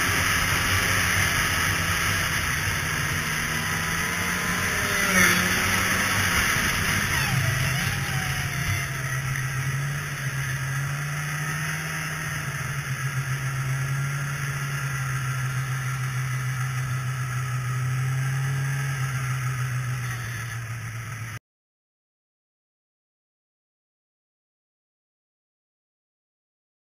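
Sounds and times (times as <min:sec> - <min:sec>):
snowmobile engine droning: 0:00.0 - 0:21.4.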